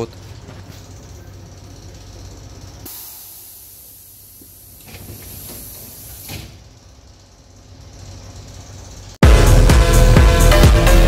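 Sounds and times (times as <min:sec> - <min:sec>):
pneumatic door air hiss: 0:02.8 - 0:09.0.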